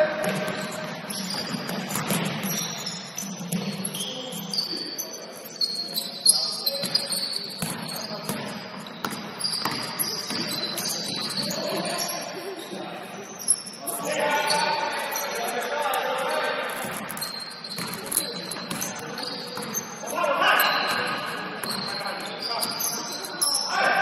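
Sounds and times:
sneaker squeaks: 0.0 - 24.0
basketball bouncing on hard court: 0.1 - 2.8, 7.6 - 11.5, 16.8 - 19.9, 20.9 - 22.0.

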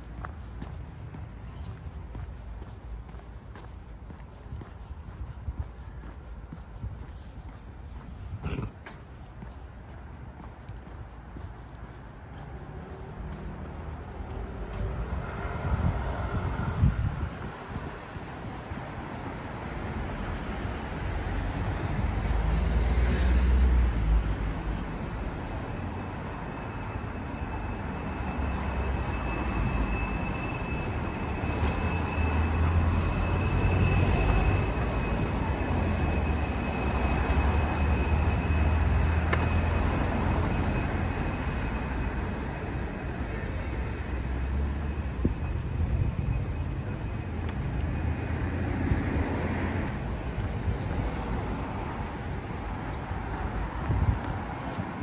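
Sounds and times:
train rumbling: 0.0 - 55.0
high-pitched whine: 25.1 - 48.7.

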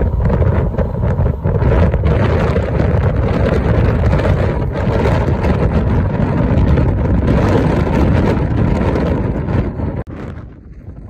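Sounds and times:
moving vehicle rumble: 0.0 - 11.0
wind buffeting microphone: 0.0 - 11.0.

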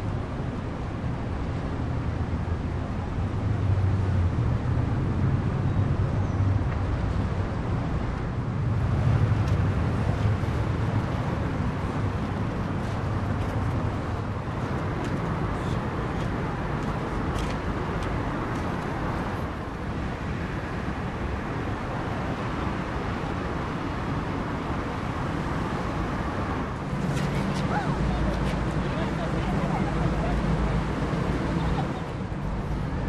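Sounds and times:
ferry diesel engines rumbling: 0.0 - 33.0
harbour noise: 7.2 - 33.0.

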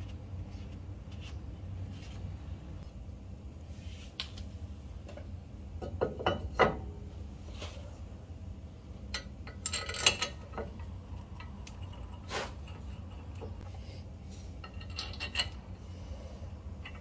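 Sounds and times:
metal parts clinking: 9.2 - 10.8, 14.6 - 15.6.

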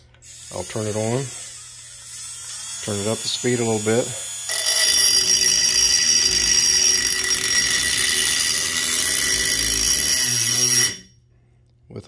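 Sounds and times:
rotary tool whining: 0.2 - 11.1
grinding bit on steel: 4.5 - 11.1.

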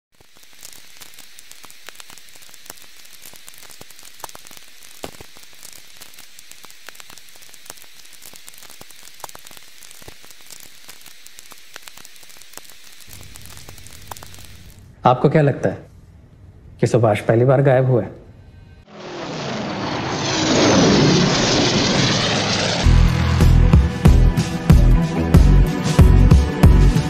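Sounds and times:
static hiss with crackles: 0.1 - 15.9.

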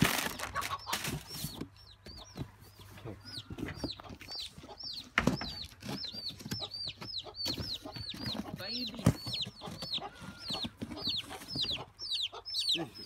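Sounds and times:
chickens peeping: 0.0 - 13.0.

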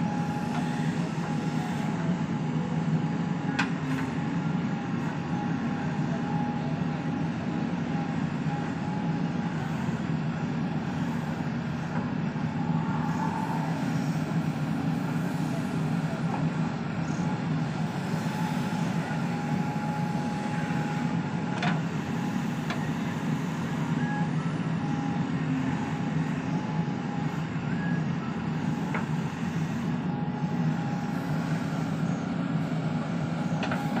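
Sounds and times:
diesel engine running under load: 0.0 - 34.0
thin whine: 11.8 - 21.2.

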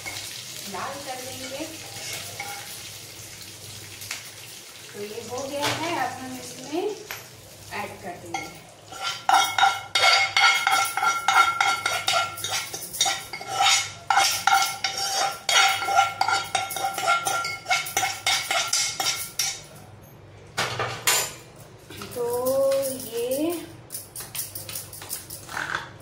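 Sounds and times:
metal spoon scraping a pan: 1.4 - 2.8, 8.3 - 19.7.

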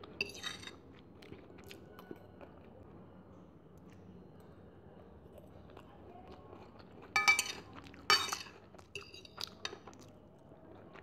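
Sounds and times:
fork clinking on ceramic plate: 7.2 - 9.3.

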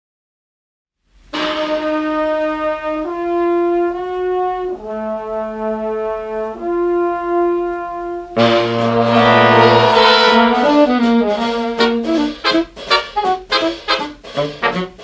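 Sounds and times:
swing orchestra on old record: 1.2 - 15.0
brass sustained chords: 4.8 - 12.2.

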